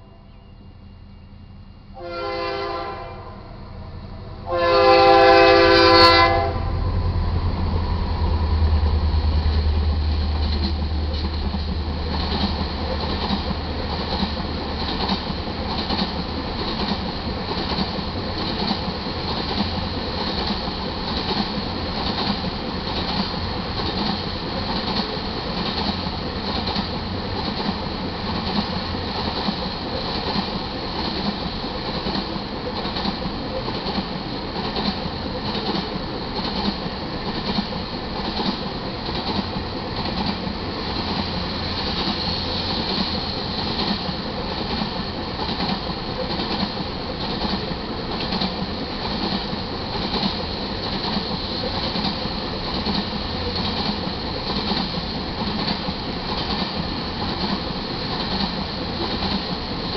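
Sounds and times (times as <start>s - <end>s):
locomotive horn blasts: 1.9s - 3.8s, 4.4s - 6.8s
deep engine rumble: 6.6s - 13.9s
wheels clicking over rail joints: 42.8s - 59.9s.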